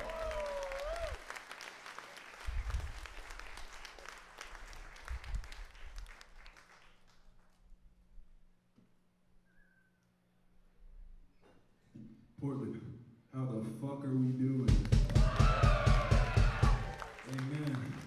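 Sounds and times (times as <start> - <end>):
audience applauding: 0.0 - 7.5, 14.8 - 18.0.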